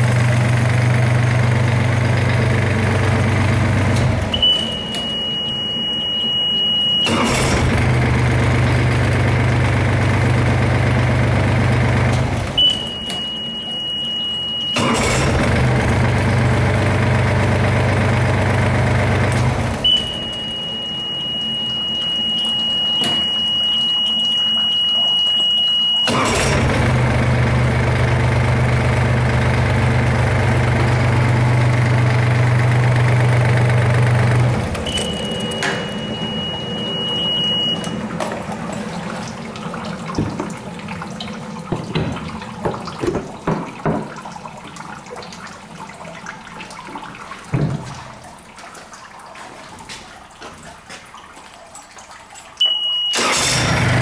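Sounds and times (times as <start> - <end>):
outboard engine idling: 0.0 - 5.2, 7.1 - 13.9, 14.8 - 21.4, 26.1 - 41.6
high-pitched warning beep: 4.3 - 7.4, 12.6 - 15.0, 19.8 - 26.1, 34.9 - 38.0, 52.6 - 53.2.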